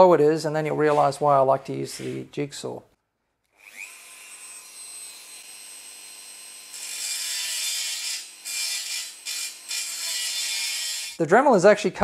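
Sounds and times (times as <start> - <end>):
rotary tool whining: 3.5 - 11.2
cut-off wheel cutting steel: 3.6 - 11.2.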